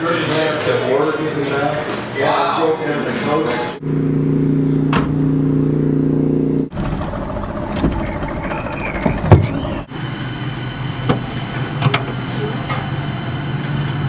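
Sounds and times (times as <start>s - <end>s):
engine hum: 3.8s - 14.0s
vehicle noise: 3.8s - 14.0s
thump: 4.9s - 5.2s.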